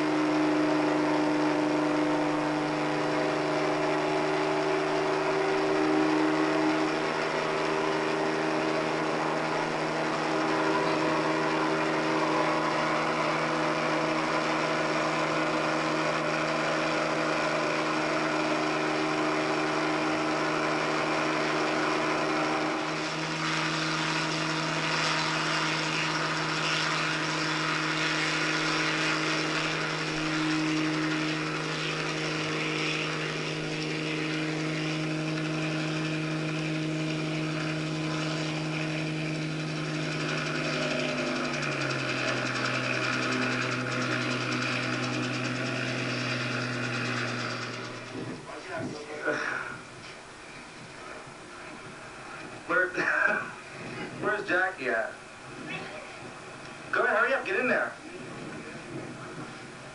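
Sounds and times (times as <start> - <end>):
helicopter engine and rotor drone: 0.0 - 59.9.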